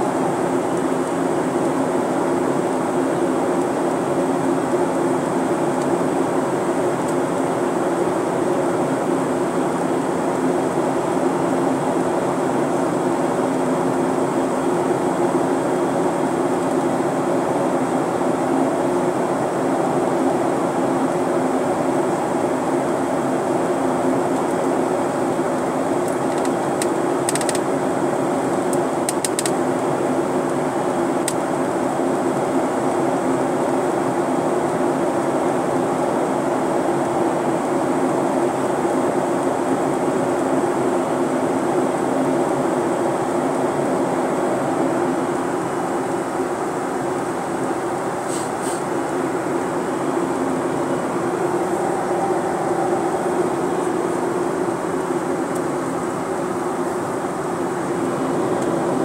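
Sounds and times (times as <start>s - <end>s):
airplane cabin engine drone: 0.0s - 59.0s
faint clicks: 26.0s - 27.6s, 28.7s - 29.6s
rushing airflow: 43.5s - 59.0s
low hum: 44.2s - 59.0s.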